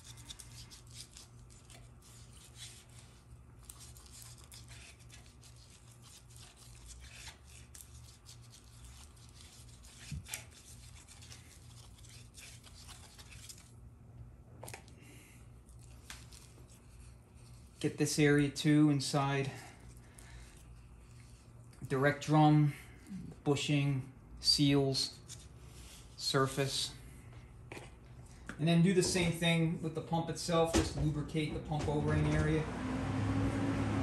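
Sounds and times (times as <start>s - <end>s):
brush rubbing: 0.0s - 13.7s.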